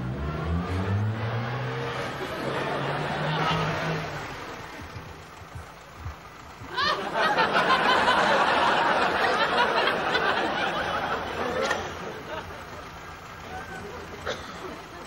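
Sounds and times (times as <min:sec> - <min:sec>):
studio audience laughter: 0:02.0 - 0:04.2, 0:06.7 - 0:13.0.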